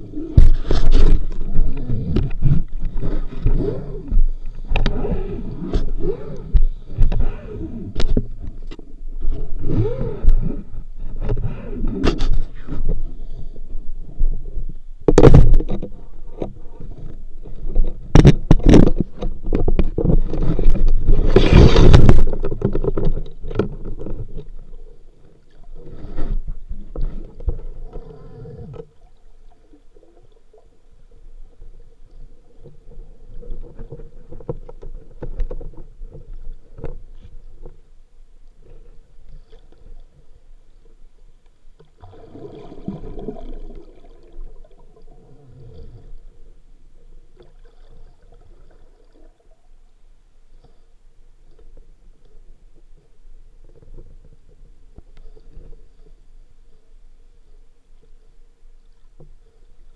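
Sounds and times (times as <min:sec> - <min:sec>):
low steady hum: 0:00.0 - 0:59.9
water rushing: 0:42.0 - 0:45.6.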